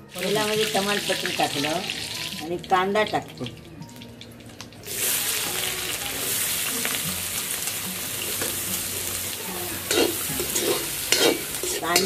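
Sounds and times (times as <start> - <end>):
onions sizzling in hot oil: 0.1 - 3.7, 4.6 - 12.0
metal spoon scraping pan: 9.5 - 12.0.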